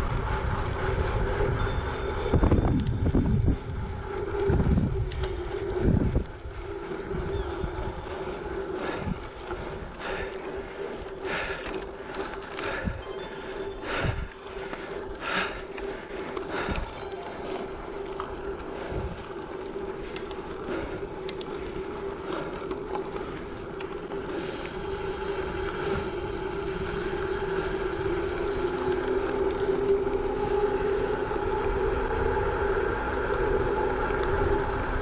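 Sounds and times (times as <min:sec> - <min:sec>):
bike tyres crunching on gravel: 0:05.2 - 0:31.4.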